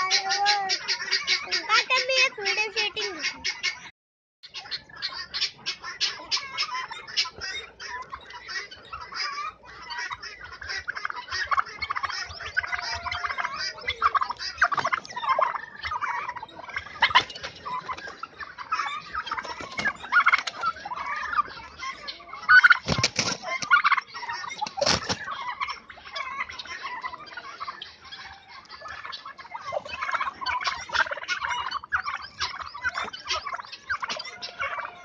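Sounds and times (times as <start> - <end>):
sharp turkey calls: 0.0 - 35.0
turkeys clucking and chirping: 0.0 - 35.0.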